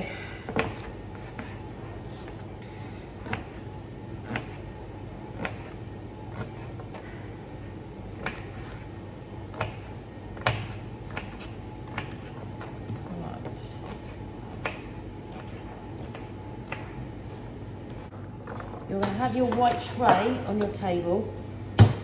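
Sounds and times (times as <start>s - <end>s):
knife chopping on board: 9.5s - 12.3s.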